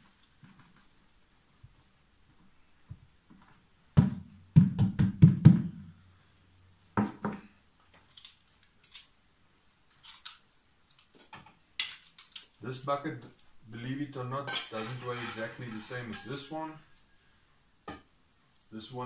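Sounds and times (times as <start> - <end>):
hollow knocks on plastic bucket: 4.0 - 5.8.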